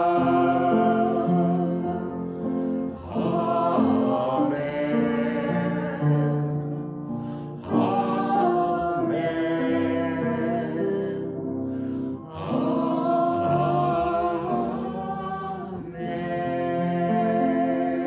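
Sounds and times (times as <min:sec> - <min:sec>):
group singing a hymn: 0:00.0 - 0:18.0
upright piano accompaniment: 0:00.0 - 0:18.0.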